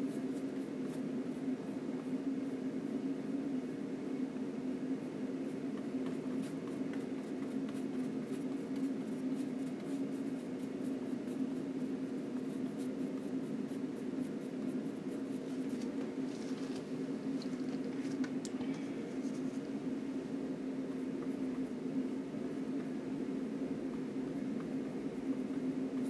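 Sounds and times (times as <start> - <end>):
steady low hum: 0.0 - 26.0
brush stroking paint: 6.1 - 16.9, 19.1 - 19.7.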